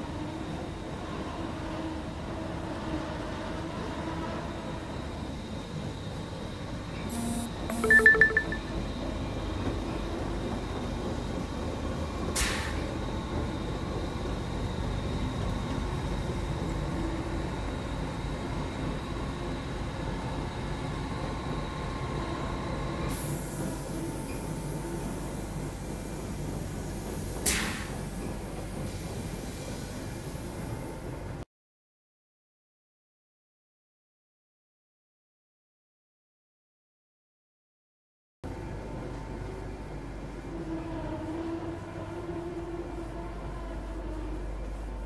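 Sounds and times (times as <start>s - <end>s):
loud pulsing tone: 7.1s - 8.7s
machinery humming: 7.1s - 8.8s
hiss: 12.4s - 13.0s, 23.1s - 30.9s.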